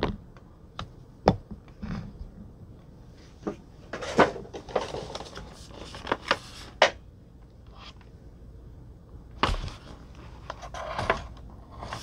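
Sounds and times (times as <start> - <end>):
crinkly plastic rustle: 4.0 - 6.6.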